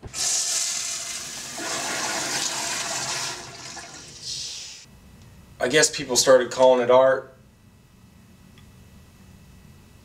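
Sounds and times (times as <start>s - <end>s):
toilet flushing water rushing: 0.0s - 4.4s.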